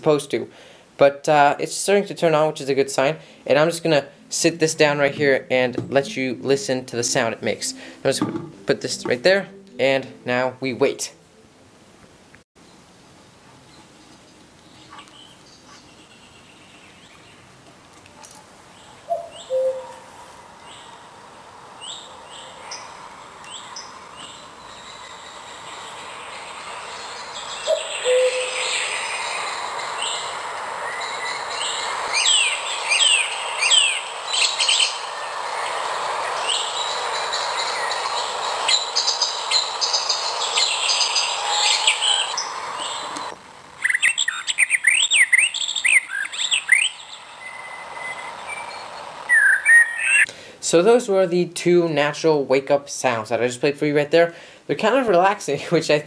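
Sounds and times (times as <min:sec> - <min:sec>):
steady background hiss: 0:00.0 - 0:56.0
birdsong chirps from small speaker: 0:18.8 - 0:21.0, 0:21.8 - 0:50.3.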